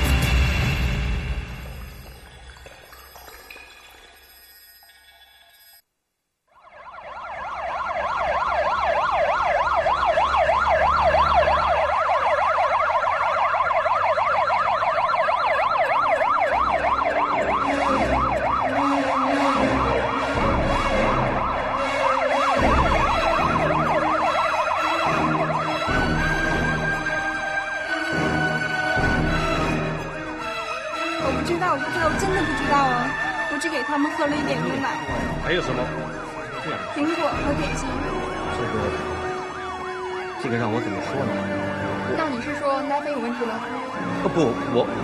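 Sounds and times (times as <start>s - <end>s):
ambulance siren yelp: 6.5s - 45.0s.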